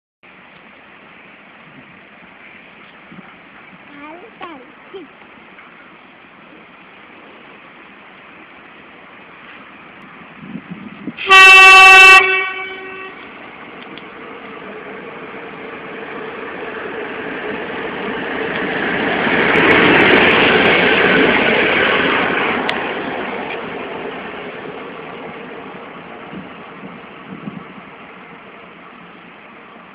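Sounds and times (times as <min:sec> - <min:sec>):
diesel engine and wheels passing: 0:00.2 - 0:29.9
loud vehicle horn blast: 0:11.2 - 0:13.2.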